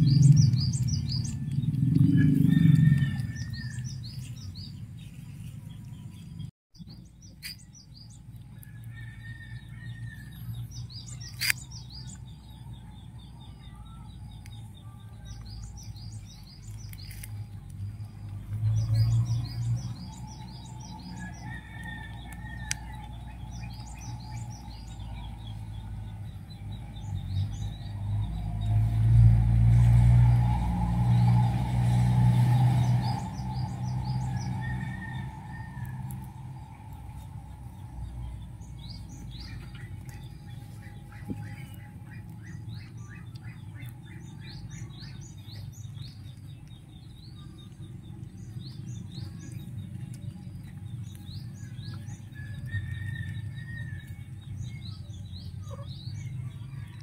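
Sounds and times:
low rumble: 0.0s - 57.0s
small birds chirping: 0.0s - 57.0s.

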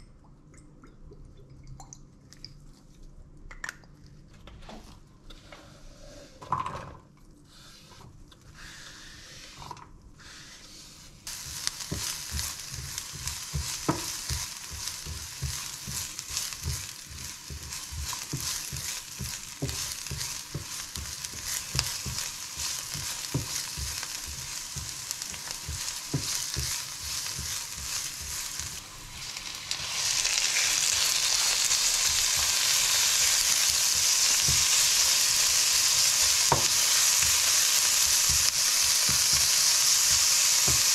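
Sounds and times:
onion sizzling in oil: 11.2s - 40.9s
spatula scraping pan: 11.3s - 29.1s.

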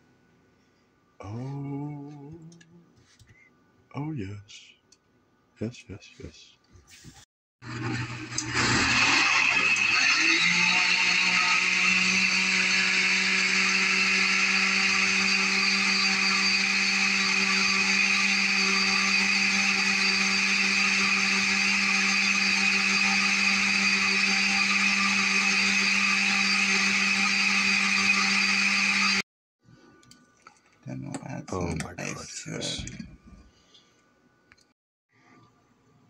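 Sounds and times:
blender motor whine: 7.6s - 29.2s.

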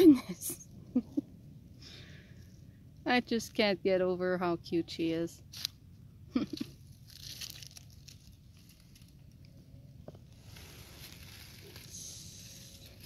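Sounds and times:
dry leaves rustling: 6.6s - 9.4s, 10.3s - 13.0s.

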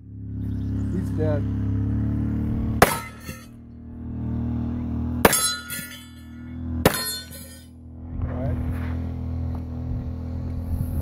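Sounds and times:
steady low hum: 0.0s - 11.0s
gunshots with metallic ringing: 5.2s - 6.2s.

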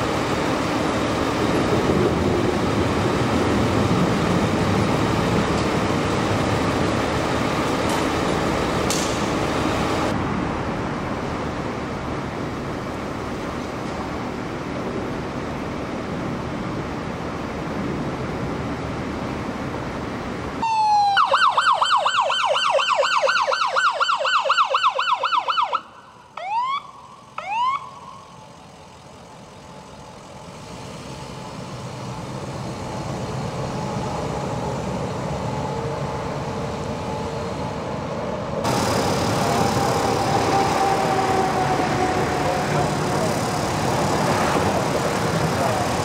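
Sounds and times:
engine and traffic rumble: 0.0s - 46.0s
siren whoops: 20.6s - 28.3s, 39.4s - 43.3s
siren yelping: 20.6s - 28.3s, 39.3s - 44.3s.

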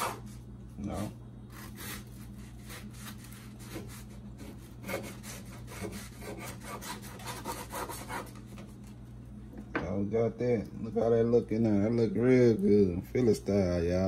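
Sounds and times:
knife sawing on cutting board: 0.0s - 0.4s, 1.5s - 8.6s.

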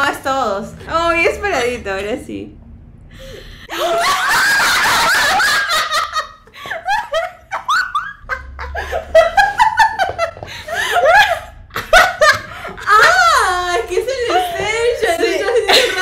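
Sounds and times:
women laughing: 3.6s - 16.0s
women screaming in excitement: 3.7s - 5.4s.

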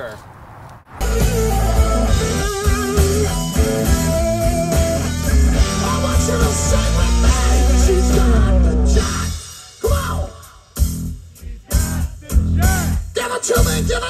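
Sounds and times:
electric guitars: 1.0s - 10.3s
bass guitar: 1.0s - 14.0s
drums: 1.0s - 14.0s.

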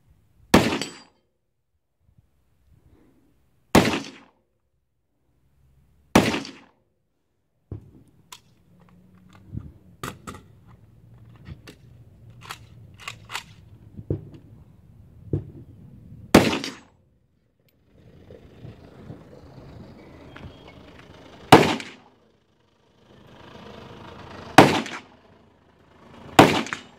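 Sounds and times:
loud gunshots with echo: 3.8s - 4.2s, 6.1s - 6.6s, 16.3s - 16.9s, 21.5s - 22.0s, 24.6s - 25.0s, 26.4s - 26.9s.

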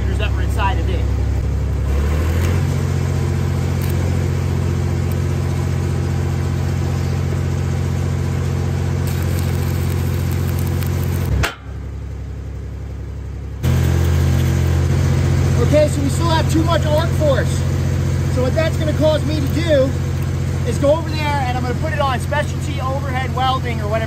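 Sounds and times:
welder engine running: 0.0s - 24.0s
welding arc crackling and hissing: 1.8s - 6.1s, 8.8s - 11.4s, 13.6s - 21.6s.

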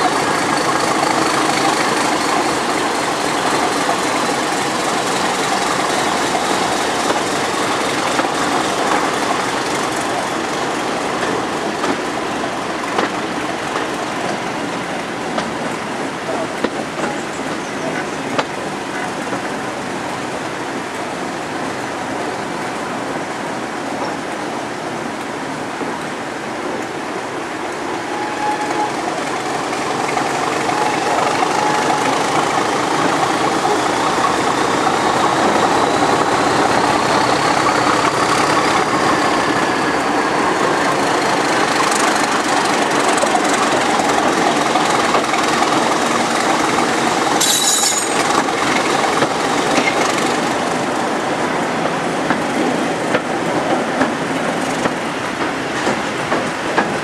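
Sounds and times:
rail-joint clicks: 0.0s - 19.6s, 27.7s - 51.1s, 51.8s - 57.0s
diesel locomotive engine working: 0.0s - 57.0s
train wheels on track: 0.0s - 57.0s.

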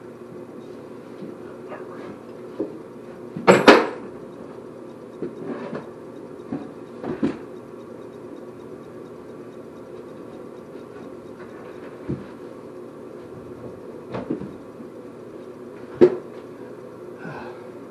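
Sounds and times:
steady low hum: 0.0s - 17.9s.

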